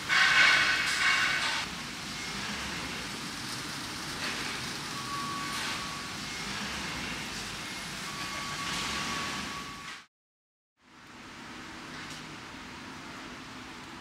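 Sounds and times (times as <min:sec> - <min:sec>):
brewery machinery noise: 0:00.0 - 0:10.1.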